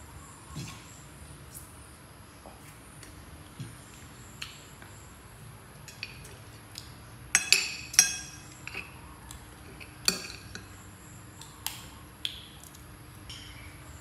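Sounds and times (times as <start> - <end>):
spoons clinking against dishes: 7.3 - 8.9, 9.8 - 10.7.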